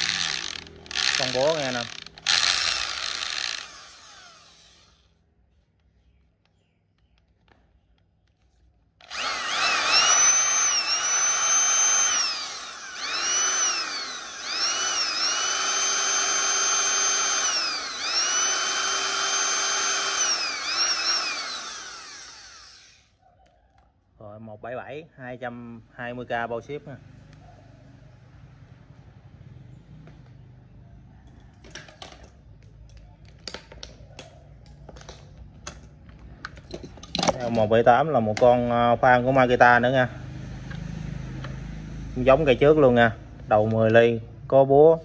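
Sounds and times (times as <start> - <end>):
electric drill motor whine: 0.0 - 5.1, 9.0 - 23.1.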